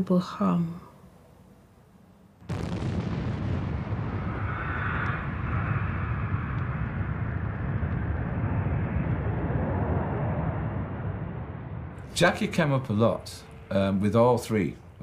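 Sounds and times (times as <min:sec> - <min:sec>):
deep explosion rumble: 0:02.4 - 0:13.7
hissing rush: 0:02.6 - 0:13.6.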